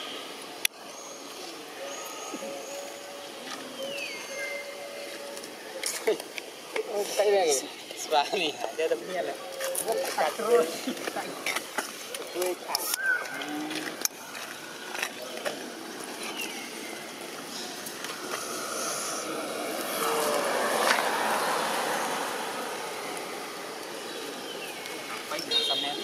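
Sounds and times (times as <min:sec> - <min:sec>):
faint voices: 0:00.0 - 0:26.0
vehicle passing by: 0:18.1 - 0:25.3.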